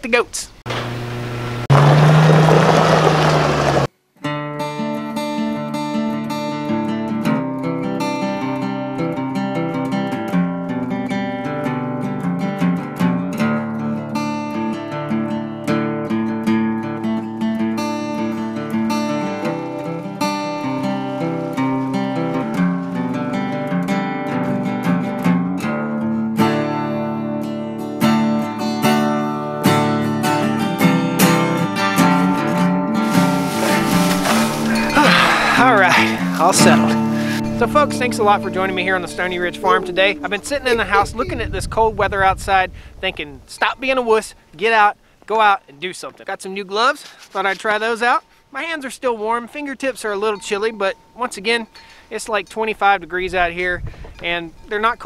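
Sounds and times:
vehicle engine running: 0.6s - 3.9s
strummed acoustic guitar music: 0.7s - 41.3s, 49.0s - 52.7s.

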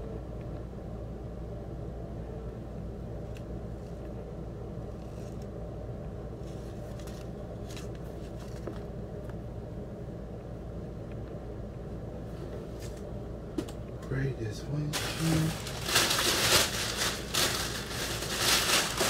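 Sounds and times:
low background hum: 0.0s - 19.0s
paper rustling and clicks: 15.0s - 19.0s.

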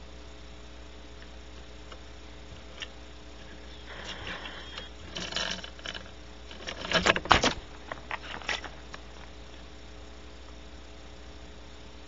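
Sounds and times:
electrical hum: 0.0s - 12.0s
scratching rustling and clicking: 2.6s - 9.4s.

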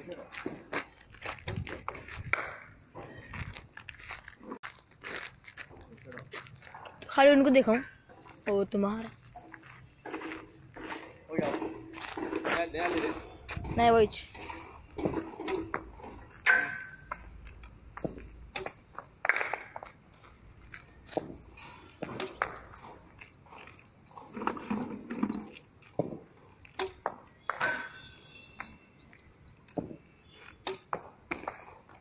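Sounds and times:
birds chirping: 0.0s - 32.0s
tennis racket striking balls: 22.0s - 23.0s, 29.7s - 31.8s.

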